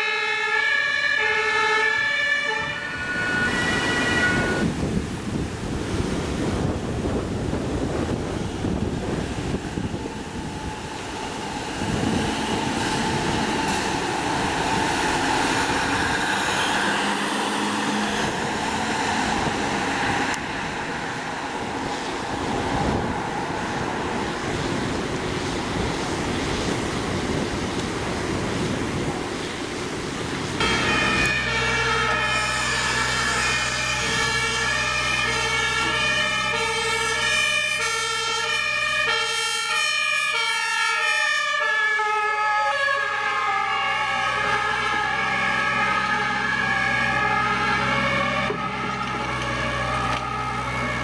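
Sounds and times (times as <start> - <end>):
two-tone siren: 0.0 - 4.8, 30.6 - 51.0
loud siren with steady tones: 0.0 - 24.6, 30.6 - 51.0
road traffic: 0.0 - 51.0.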